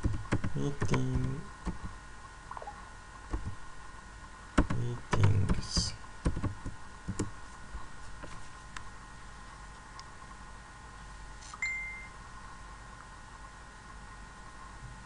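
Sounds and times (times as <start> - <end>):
faint electrical hum: 0.0 - 15.0
keyboard key clicks: 4.6 - 7.3.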